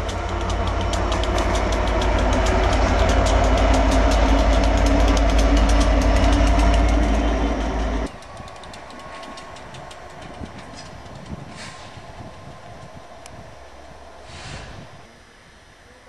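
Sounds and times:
rapid even ticking: 0:00.0 - 0:11.5
diesel locomotive engine rumble: 0:00.0 - 0:15.2.

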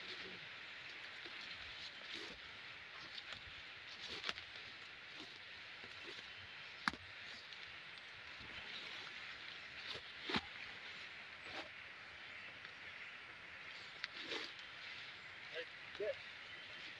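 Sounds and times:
leaves brushing: 0:00.0 - 0:11.7, 0:13.7 - 0:16.9
footsteps through undergrowth: 0:00.0 - 0:11.8, 0:13.7 - 0:16.9
twigs snapping: 0:03.1 - 0:06.2, 0:06.8 - 0:08.1.

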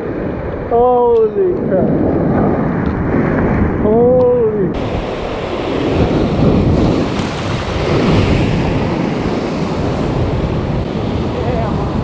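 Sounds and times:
wind buffeting microphone: 0:00.0 - 0:12.0
surf breaking on rocks: 0:04.8 - 0:12.0.

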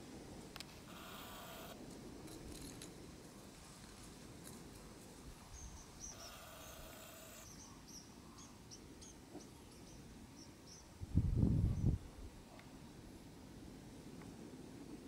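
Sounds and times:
steady whining tone: 0:00.6 - 0:01.8, 0:06.2 - 0:07.5
small bird chirping: 0:05.5 - 0:10.9.

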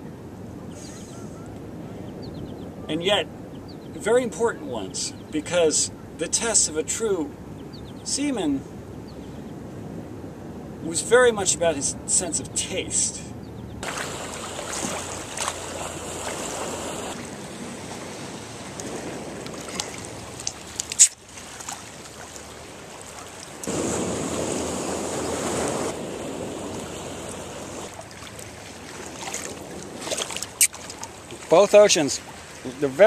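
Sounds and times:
wind on microphone: 0:00.0 - 0:04.0, 0:13.3 - 0:21.2, 0:23.2 - 0:31.4
water washing against rocks: 0:13.8 - 0:32.9.

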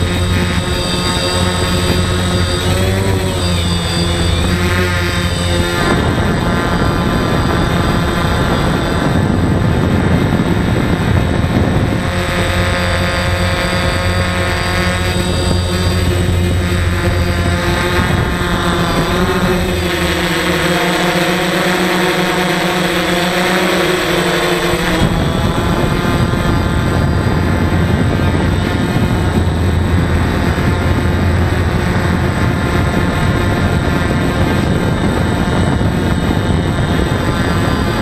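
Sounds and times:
drone motors whining: 0:00.0 - 0:38.0
rushing air: 0:23.5 - 0:38.0.

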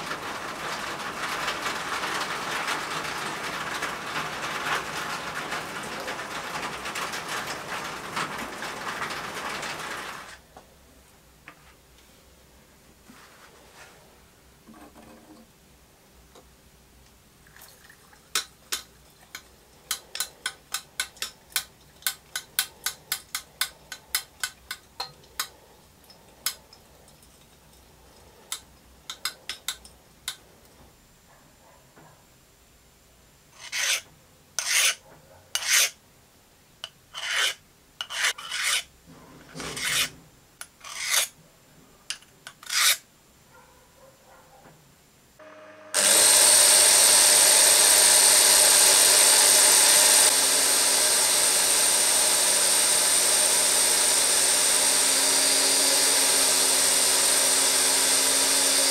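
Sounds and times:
file rasping on steel: 0:33.6 - 0:36.0, 0:36.8 - 0:38.9, 0:39.6 - 0:41.4, 0:42.5 - 0:43.0, 0:46.0 - 0:58.9.

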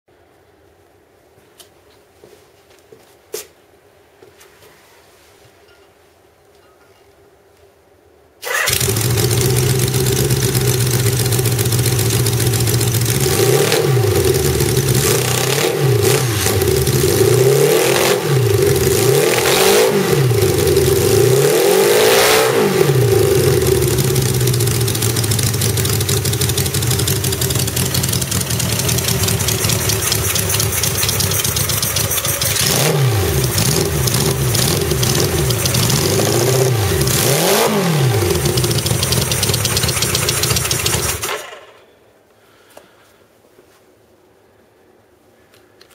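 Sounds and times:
motorcycle engine revving: 0:08.4 - 0:41.8.

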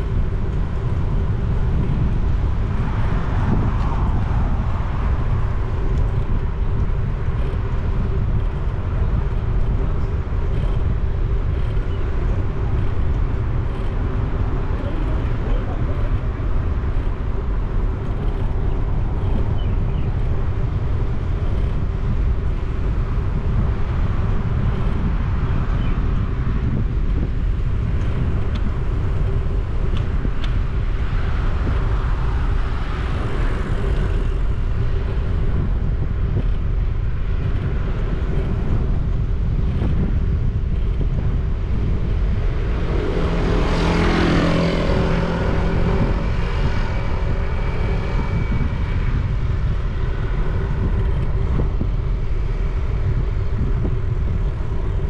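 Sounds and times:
low traffic rumble: 0:00.0 - 0:55.0
motorcycle engine hum: 0:00.0 - 0:55.0
vehicle passing close by: 0:42.2 - 0:50.0.

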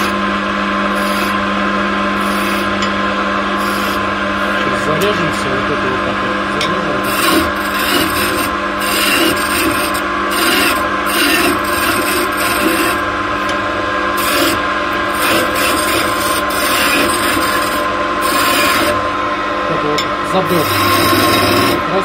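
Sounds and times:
wood lathe hum: 0:00.0 - 0:22.0
chisel rasping on spinning wood: 0:02.2 - 0:02.7, 0:03.6 - 0:04.6, 0:07.0 - 0:13.6, 0:14.2 - 0:19.0, 0:20.4 - 0:22.0.

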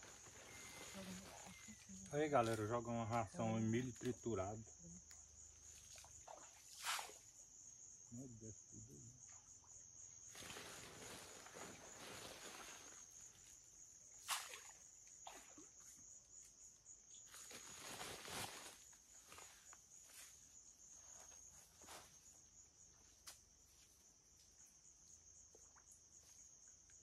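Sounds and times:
insects droning: 0:00.0 - 0:27.0
groundbait splashing into river: 0:05.6 - 0:07.3, 0:14.2 - 0:15.8
feed sack rustling: 0:10.3 - 0:13.0.

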